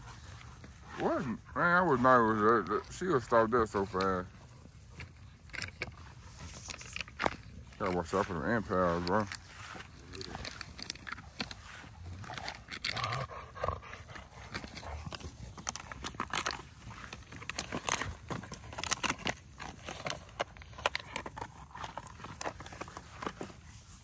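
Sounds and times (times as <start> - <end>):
dogs scuffling: 0.0 - 24.0.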